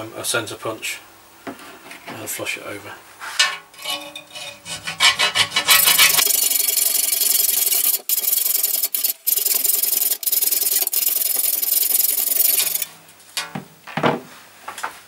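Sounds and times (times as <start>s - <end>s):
gritty metal cutting noise: 3.7s - 13.0s.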